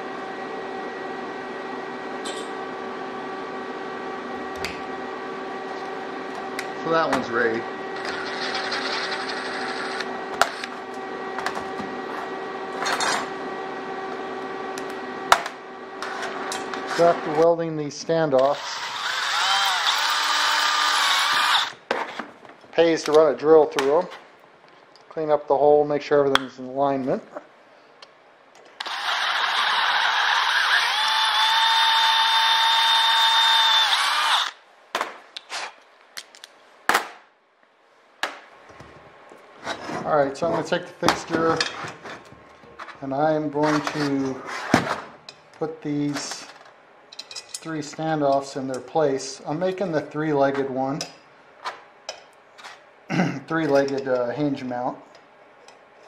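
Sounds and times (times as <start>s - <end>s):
steady hum: 0.0s - 56.0s
power drill whining: 8.0s - 10.7s, 18.4s - 21.8s, 28.8s - 34.6s.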